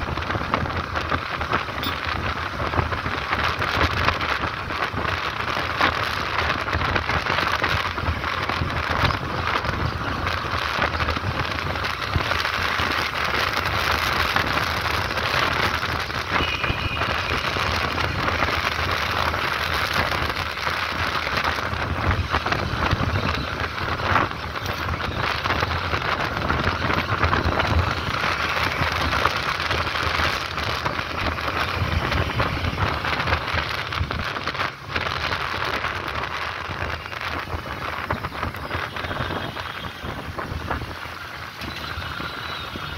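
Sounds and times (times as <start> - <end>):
motorcycle and road rumble: 0.0 - 42.9
wind rushing on microphone: 0.0 - 42.9.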